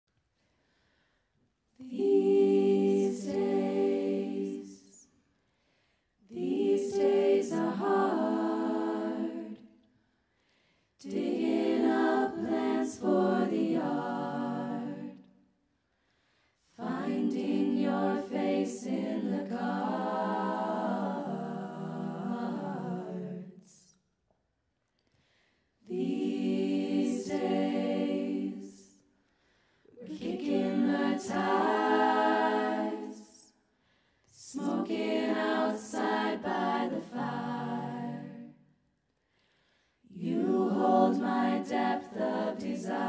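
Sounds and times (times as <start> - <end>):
women singing a cappella: 1.8 - 5.2, 6.2 - 10.0, 11.0 - 15.5, 16.6 - 24.0, 25.8 - 29.1, 29.8 - 33.7, 34.3 - 38.8, 40.0 - 43.0.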